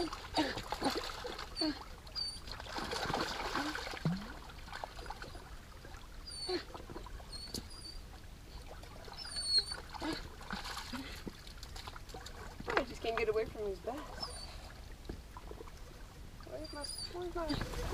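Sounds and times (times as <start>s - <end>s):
fish splashing in shallows: 0.0s - 7.2s
dog whining: 1.5s - 2.5s, 6.3s - 6.7s, 7.3s - 8.0s, 9.2s - 10.2s, 14.1s - 14.6s, 16.5s - 17.9s.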